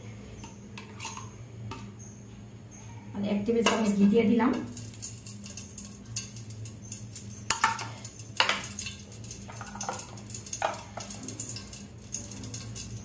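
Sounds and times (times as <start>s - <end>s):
hot oil popping: 3.6s - 13.0s.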